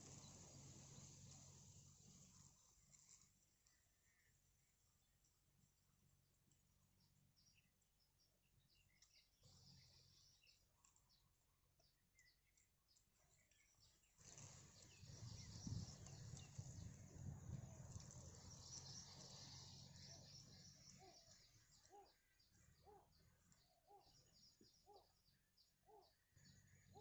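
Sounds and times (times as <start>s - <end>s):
short soft bird calls: 7.4s - 27.0s.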